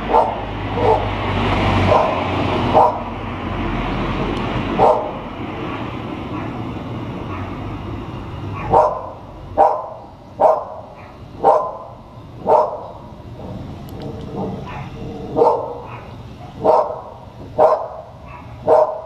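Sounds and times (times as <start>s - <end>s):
dog barking: 0.0s - 1.2s, 1.9s - 3.1s, 4.7s - 5.2s, 6.3s - 6.6s, 7.2s - 7.6s, 8.5s - 13.0s, 14.3s - 19.0s
street traffic hum: 0.0s - 19.0s.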